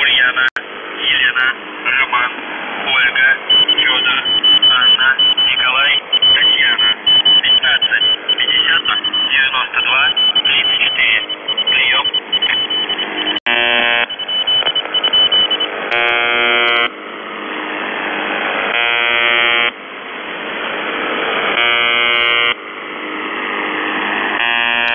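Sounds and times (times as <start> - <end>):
shortwave static hiss: 0.0 - 4.2, 13.0 - 24.9
harsh radio buzz tones: 0.0 - 17.5, 18.1 - 19.8, 20.9 - 22.6, 24.4 - 24.9.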